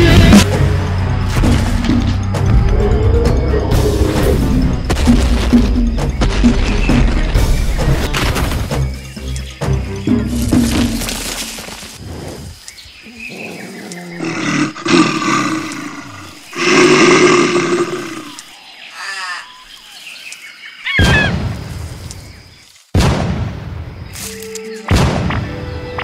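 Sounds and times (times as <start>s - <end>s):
dinosaur roars: 13.1s - 18.4s.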